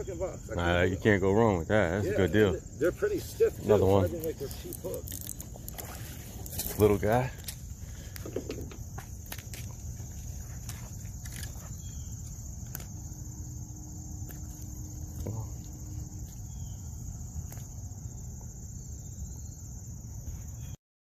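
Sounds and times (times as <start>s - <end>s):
constant low rumble: 0.0s - 20.7s
high-pitched insect chorus: 0.0s - 20.8s
rustles: 3.2s - 13.2s.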